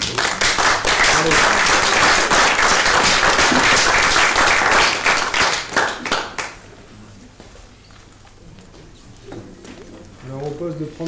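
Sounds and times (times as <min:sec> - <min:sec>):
group applauding: 0:00.0 - 0:06.7.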